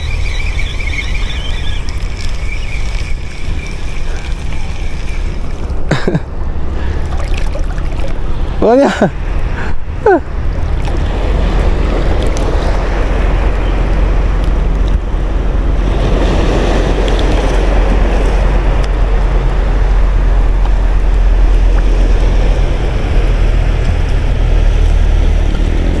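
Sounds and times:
small waves lapping: 0.0 - 9.6, 10.2 - 19.6
wind rumbling on microphone: 0.0 - 26.0.

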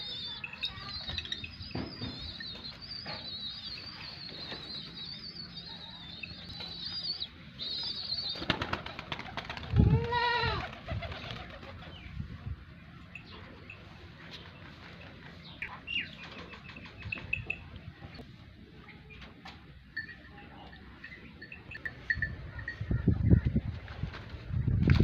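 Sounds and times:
pigeons flapping wings: 8.2 - 11.9, 23.7 - 25.0.

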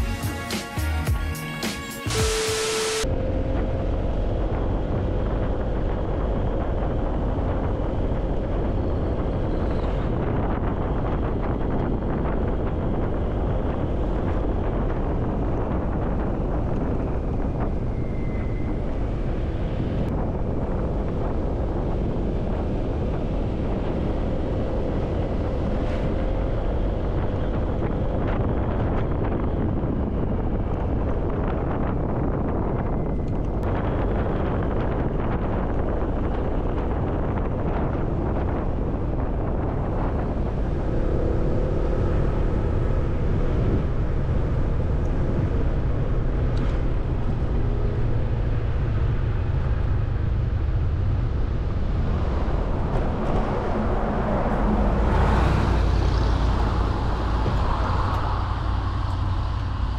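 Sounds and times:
scooter engine humming: 2.8 - 14.6
wind buffeting microphone: 3.0 - 59.9.

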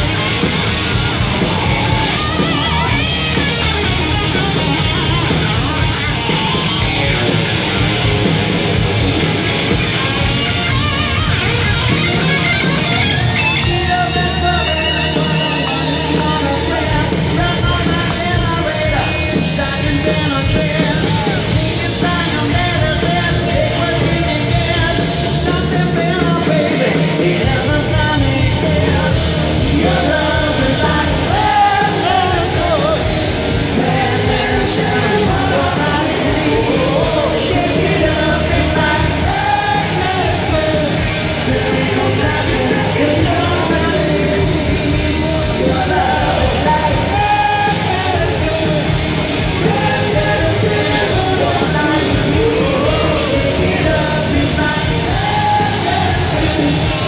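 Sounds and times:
drums: 0.0 - 57.0
electric guitar: 0.0 - 57.0
person singing: 13.5 - 57.0.

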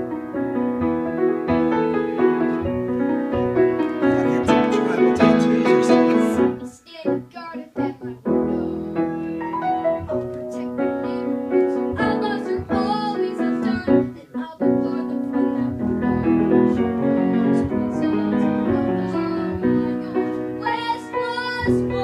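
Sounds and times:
piano accompaniment: 0.0 - 22.0
boy singing: 4.2 - 9.0, 10.5 - 16.4, 17.5 - 22.0.

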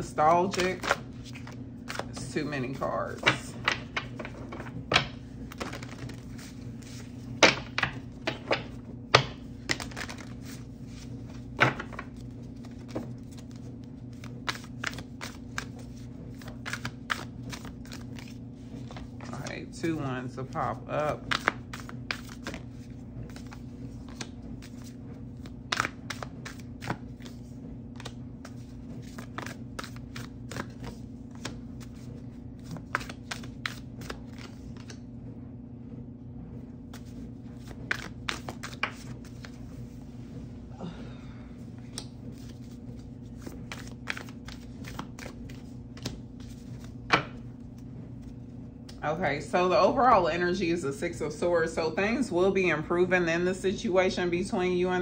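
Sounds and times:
steady low hum: 0.0 - 55.0
cards shuffling and clicking: 0.2 - 19.6, 20.4 - 35.0, 36.9 - 39.7, 41.8 - 48.3.

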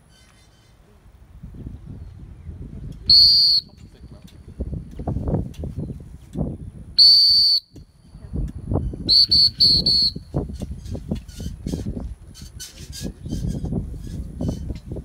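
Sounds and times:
dog whistle blasts: 3.1 - 3.8, 7.0 - 7.8, 9.0 - 10.4.

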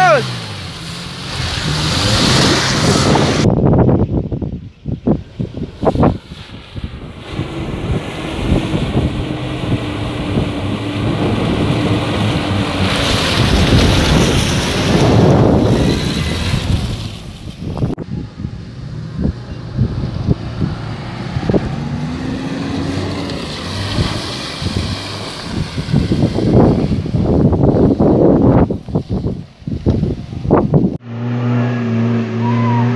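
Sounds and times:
loud rushing noise: 0.0 - 3.5, 5.4 - 27.6
car engine running under load: 5.0 - 32.6.

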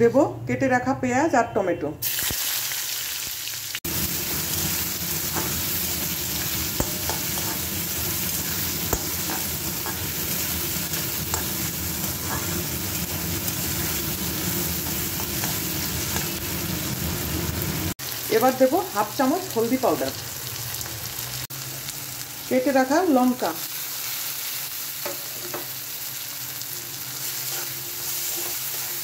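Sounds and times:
onion sizzling in hot oil: 2.0 - 29.0
spatula tapping metal pan: 5.3 - 7.7, 8.6 - 12.6.

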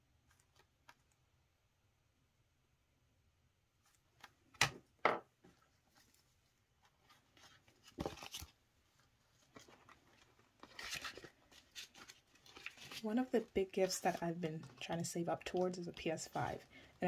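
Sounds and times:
paper envelopes and banknotes rustling: 5.8 - 17.0.

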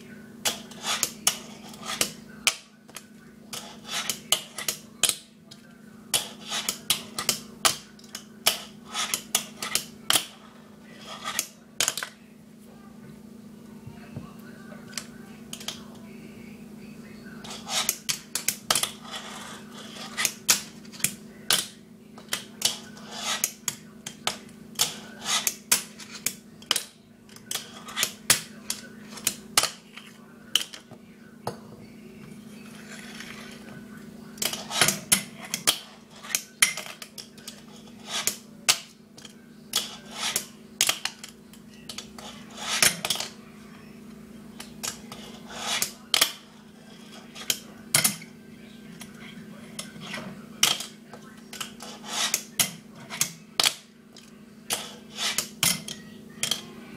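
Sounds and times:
steady low hum: 0.0 - 56.9
fingerboard scrapes: 23.0 - 23.5, 42.2 - 42.9, 51.8 - 52.4.

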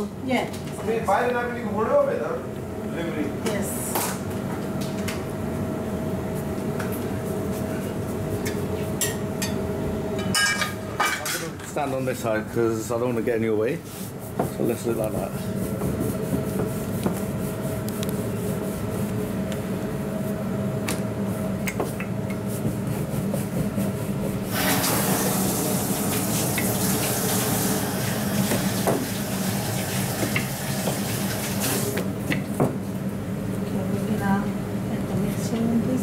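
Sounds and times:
rolling pin rolling dough: 13.9 - 19.6, 21.4 - 24.7.

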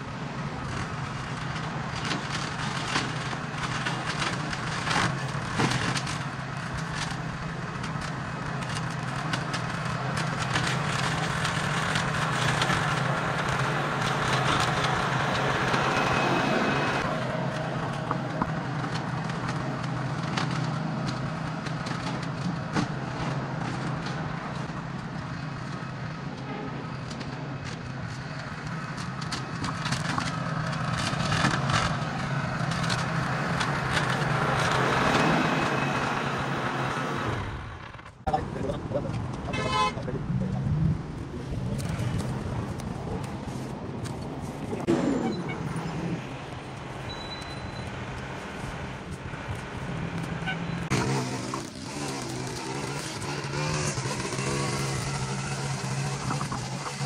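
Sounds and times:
small gasoline engine running: 50.9 - 57.0.

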